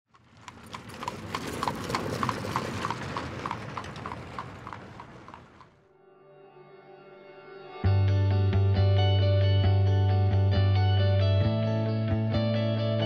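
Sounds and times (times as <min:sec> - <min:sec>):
horse hooves clip-clopping: 0:00.1 - 0:05.8
low rumble: 0:00.2 - 0:05.8.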